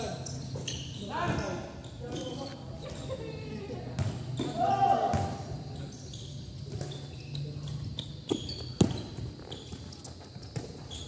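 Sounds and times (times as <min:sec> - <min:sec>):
basketball bouncing on concrete: 0:04.0 - 0:05.4, 0:08.3 - 0:09.8, 0:10.5 - 0:11.0.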